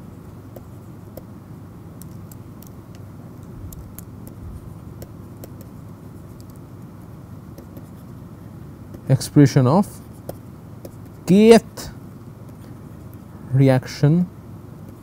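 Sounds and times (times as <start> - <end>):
low background rumble: 0.0 - 15.0
stylus tapping on pen tablet: 0.6 - 1.3, 5.0 - 5.8, 7.5 - 7.9, 10.2 - 11.2.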